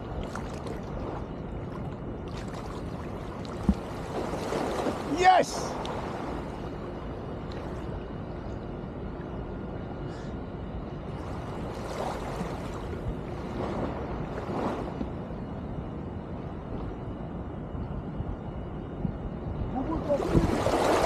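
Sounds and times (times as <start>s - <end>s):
splashing of wading: 0.0s - 6.7s
sea water noise: 0.0s - 18.6s, 19.4s - 21.0s
wind: 0.0s - 21.0s.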